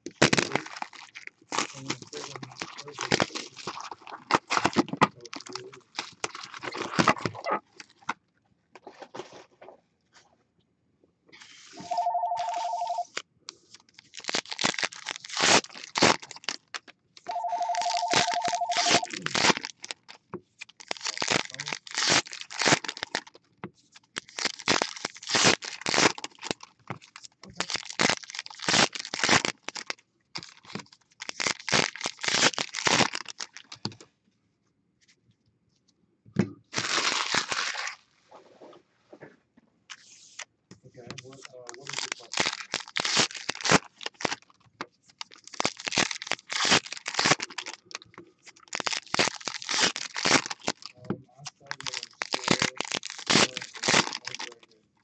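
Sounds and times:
card packs being torn open: 0:00.0 - 0:08.1, 0:12.4 - 0:34.0, 0:36.7 - 0:38.0, 0:41.1 - 0:54.7
foil wrappers crinkling: 0:00.0 - 0:08.1, 0:11.8 - 0:34.0, 0:36.7 - 0:38.1, 0:41.0 - 0:54.8
telephone ringing warbling tone: 0:11.8 - 0:13.1, 0:17.3 - 0:19.1.

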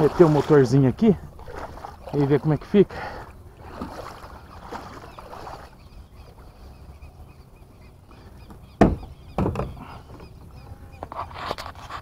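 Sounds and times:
faint bird chirps: 0:04.2 - 0:11.1
sharp knocks: 0:08.8 - 0:09.8.

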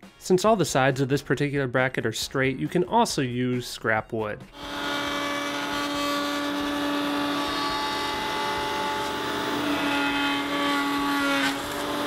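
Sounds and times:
router trimming plastic: 0:04.6 - 0:12.0
router whining: 0:04.6 - 0:12.0.

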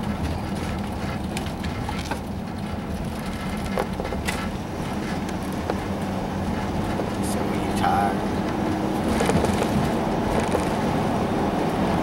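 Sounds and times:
faint clicks and rattles: 0:00.0 - 0:07.3
engine and tyre rumble: 0:00.0 - 0:12.0.

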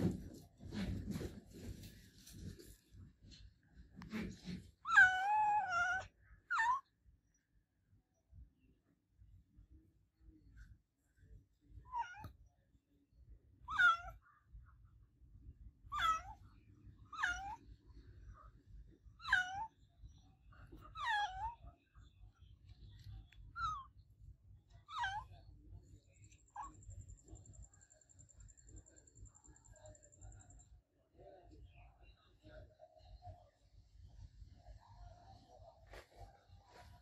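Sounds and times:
cat meowing: 0:04.9 - 0:06.8, 0:13.7 - 0:14.2, 0:15.9 - 0:16.4, 0:17.1 - 0:17.6, 0:19.2 - 0:19.8, 0:20.8 - 0:21.6, 0:24.9 - 0:25.3.

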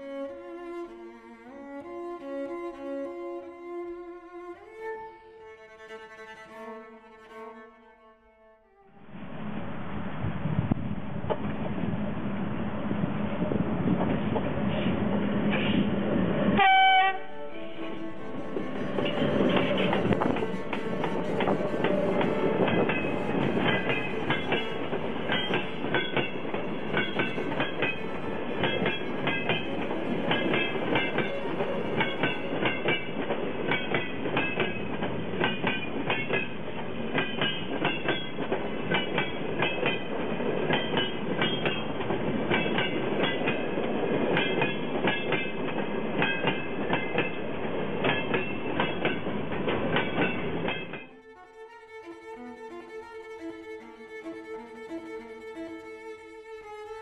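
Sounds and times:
freight train rumbling past: 0:08.8 - 0:57.0
high metallic squeals: 0:16.6 - 0:32.9
wheels clicking over rail joints: 0:19.0 - 0:51.1.

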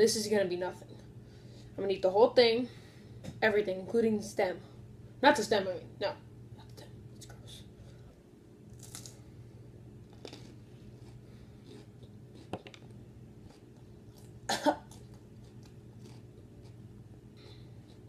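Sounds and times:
person chewing: 0:08.7 - 0:09.2, 0:10.0 - 0:16.9, 0:17.5 - 0:18.0
person coughing: 0:14.5 - 0:14.9.

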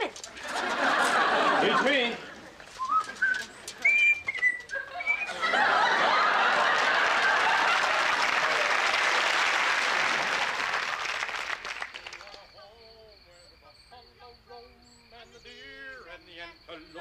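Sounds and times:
audience applauding: 0:00.0 - 0:03.5, 0:04.3 - 0:12.6
audience laughter: 0:00.2 - 0:04.0, 0:04.6 - 0:11.1
whistled bird-call notes: 0:02.7 - 0:05.6.

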